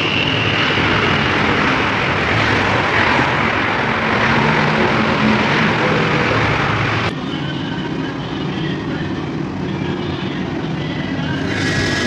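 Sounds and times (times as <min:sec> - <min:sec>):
loud rushing noise: 0:00.0 - 0:07.5.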